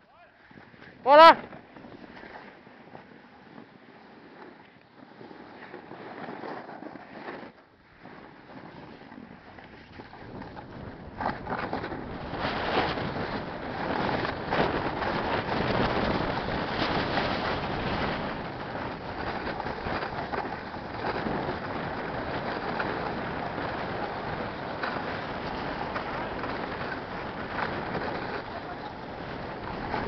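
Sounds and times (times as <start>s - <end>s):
snowboard scraping over snow: 0.4s - 30.0s
wind rushing over microphone: 9.8s - 30.0s.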